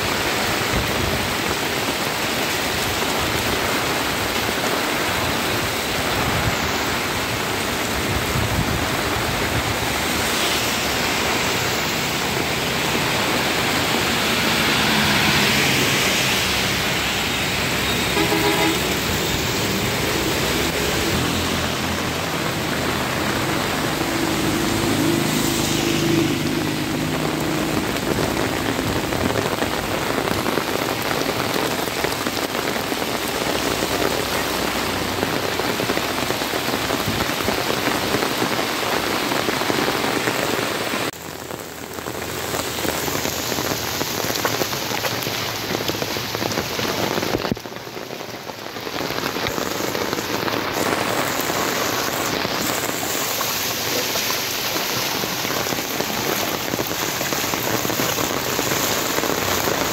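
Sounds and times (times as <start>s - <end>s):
heavy rain on road: 0.0s - 59.9s
tyres hissing on wet road: 0.0s - 59.9s
vehicle engines humming: 4.9s - 31.6s.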